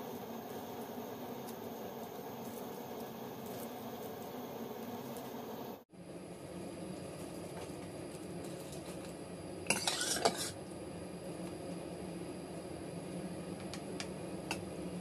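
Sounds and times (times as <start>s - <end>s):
cup scraping metal pot: 9.7s - 10.6s.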